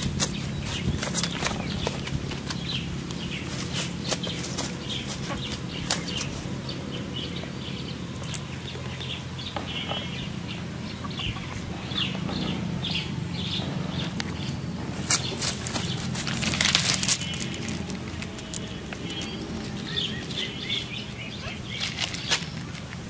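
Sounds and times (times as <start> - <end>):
short bird calls: 2.6 - 16.1
hands rustling net mesh: 14.9 - 20.6, 21.6 - 23.0.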